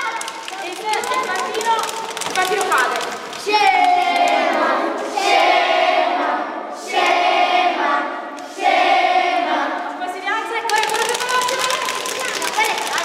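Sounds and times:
children and women chanting: 0:03.4 - 0:10.1.

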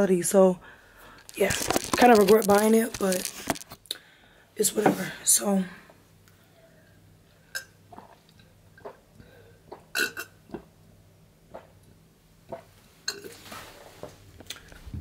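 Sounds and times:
person swallowing and gulping: 0:01.3 - 0:03.8.

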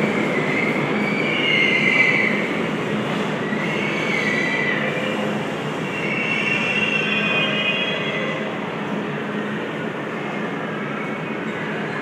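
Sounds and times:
train wheels rumbling on rail: 0:00.0 - 0:12.0
high-pitched wheel squeal: 0:05.8 - 0:08.5.

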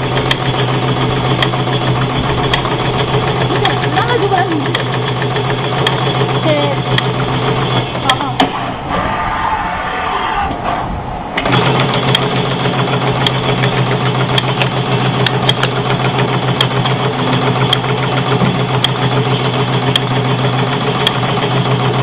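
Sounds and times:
motor hum: 0:00.0 - 0:22.0
tufting machine clatter: 0:00.0 - 0:22.0
sharp ticks: 0:00.2 - 0:00.6, 0:01.3 - 0:01.6, 0:02.3 - 0:06.1, 0:13.2 - 0:15.8, 0:16.6 - 0:16.9, 0:17.7 - 0:17.9, 0:18.8 - 0:19.0, 0:19.9 - 0:20.1, 0:21.0 - 0:21.2.

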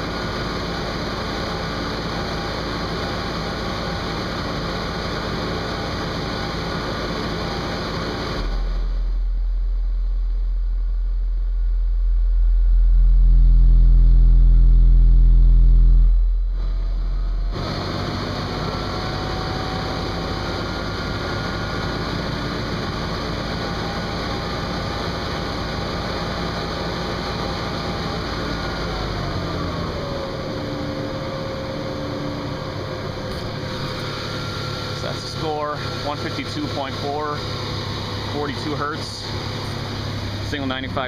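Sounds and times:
faint whine: 0:00.0 - 0:41.0
mechanical hum: 0:00.0 - 0:41.0
very loud bass tone: 0:07.5 - 0:20.4.

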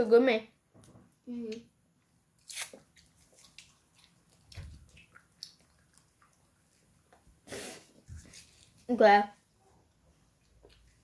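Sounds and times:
children chewing gum: 0:02.4 - 0:08.8.

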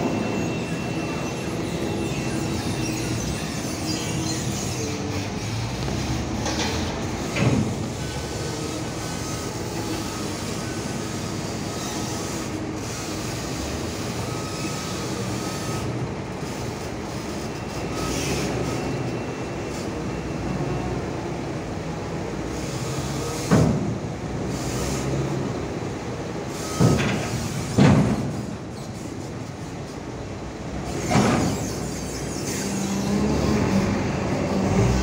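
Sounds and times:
trailer rumbling and rattling: 0:32.7 - 0:35.0.

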